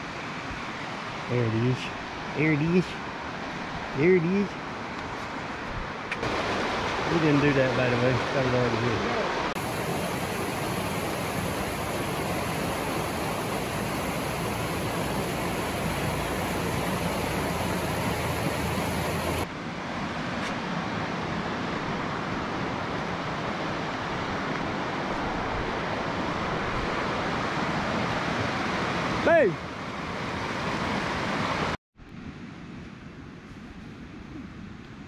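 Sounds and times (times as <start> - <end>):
creek water rushing over rocks: 6.1 - 19.5.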